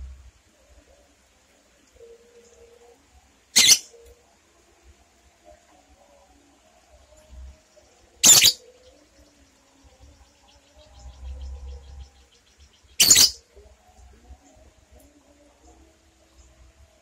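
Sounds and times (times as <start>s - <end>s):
bird screeching calls: 3.6s - 3.9s, 8.2s - 8.6s, 13.0s - 13.4s.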